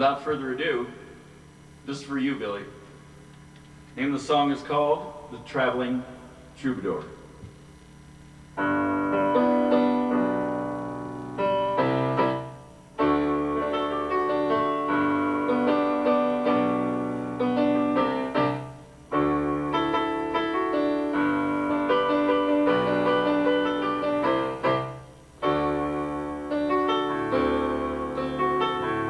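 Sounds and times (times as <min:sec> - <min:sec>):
solo piano playing: 0:08.6 - 0:29.0.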